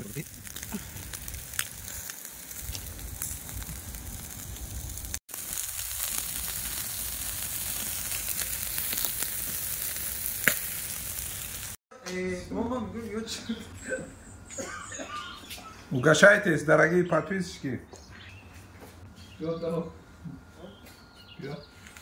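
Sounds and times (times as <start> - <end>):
sharp crackles: 0.0 - 11.8
meat sizzling over coals: 0.0 - 12.3.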